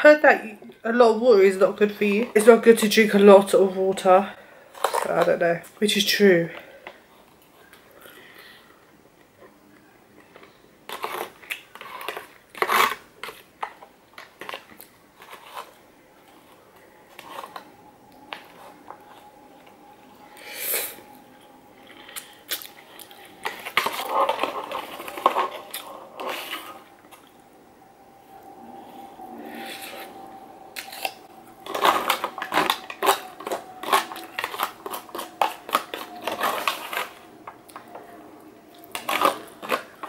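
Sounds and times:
close-up chewing: 21.3s - 27.4s.

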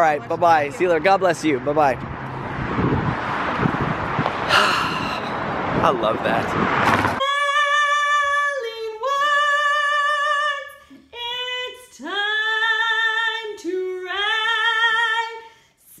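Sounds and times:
high voice singing with vibrato: 7.2s - 15.5s.

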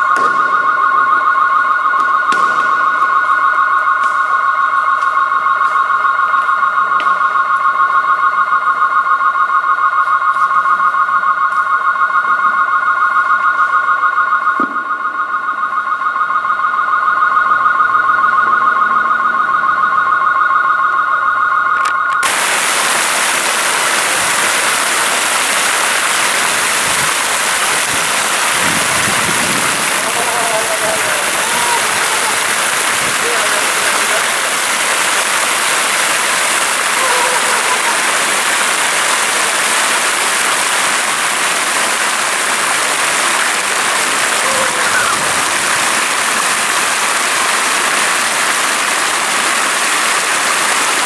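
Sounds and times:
fountain water splashing: 0.0s - 8.6s, 21.8s - 51.0s
pulsing two-note high tone: 0.0s - 22.5s, 23.3s - 40.2s.

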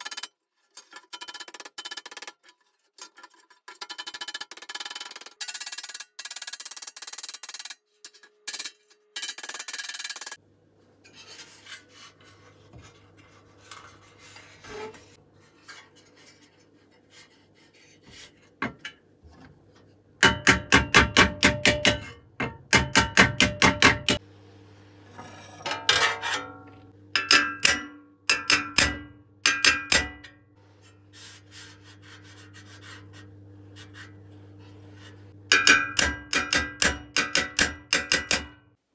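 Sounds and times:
scraping on metal: 11.0s - 16.6s, 25.1s - 27.0s
hammer striking sheet steel: 20.2s - 24.2s, 25.2s - 30.4s, 35.5s - 38.6s.

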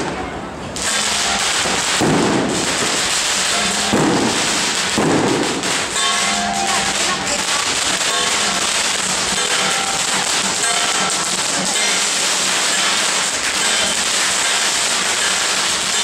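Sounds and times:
firecrackers crackling: 0.0s - 16.0s
heavier firecracker bursts: 0.0s - 16.0s.

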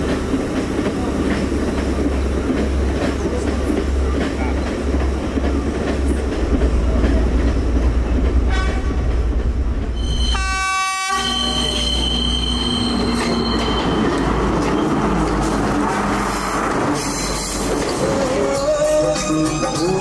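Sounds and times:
train rumbling: 0.0s - 20.0s
train horn blast: 8.4s - 9.0s, 10.0s - 13.1s
high wheel squeal: 10.0s - 15.5s.

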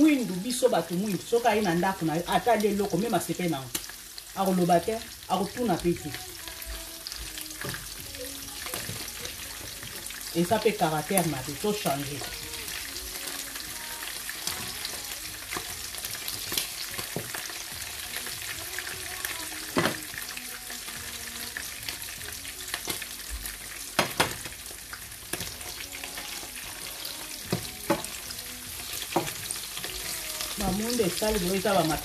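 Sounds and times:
chicken sizzling in oil: 0.0s - 32.0s
wooden utensil knocking on pan: 27.5s - 28.1s.

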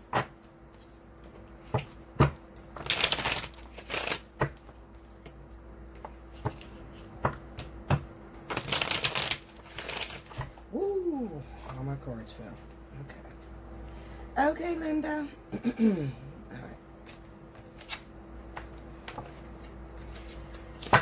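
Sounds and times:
cards being shuffled: 0.1s - 10.6s, 17.0s - 21.0s.

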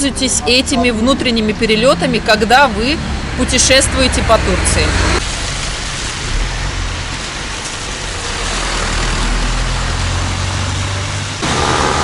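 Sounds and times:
minibus engine running: 0.0s - 12.0s
tyres hissing on wet road: 3.1s - 12.0s.

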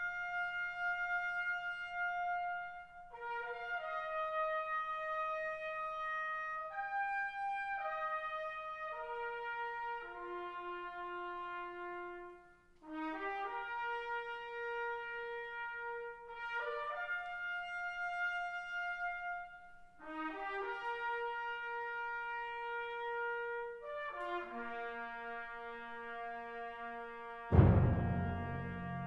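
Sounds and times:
solo brass slow melody: 0.0s - 29.0s.

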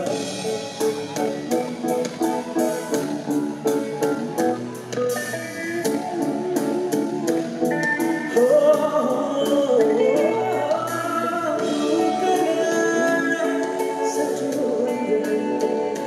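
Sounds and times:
live band music: 0.0s - 16.0s
man singing into microphone: 8.0s - 16.0s.

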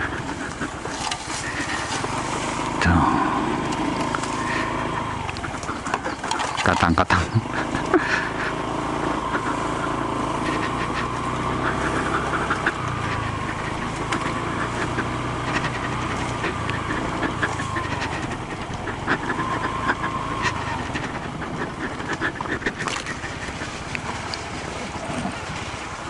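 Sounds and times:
scooter engine whine: 0.0s - 26.0s.

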